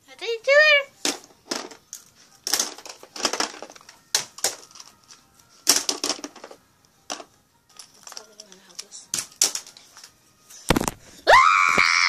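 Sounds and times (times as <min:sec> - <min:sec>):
puzzle pieces rustling and clattering: 0:01.0 - 0:11.1.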